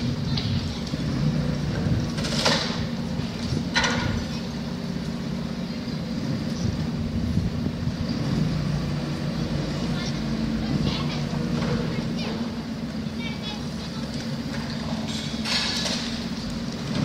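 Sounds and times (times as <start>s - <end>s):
demolition machine engine running: 0.0s - 17.0s.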